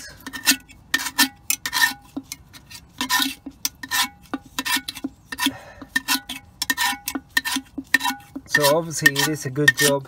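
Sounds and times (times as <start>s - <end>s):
metal tool scraping metal: 0.0s - 10.0s.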